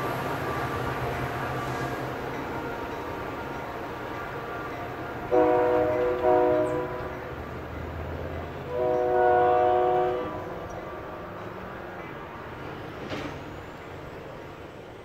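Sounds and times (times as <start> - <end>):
locomotive air horn blasts: 5.2 - 7.1, 8.7 - 11.3.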